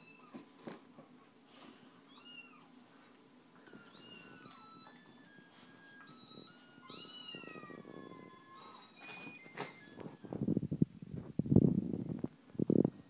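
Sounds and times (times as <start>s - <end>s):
cat meow ringtone: 3.7s - 5.4s, 6.0s - 10.0s.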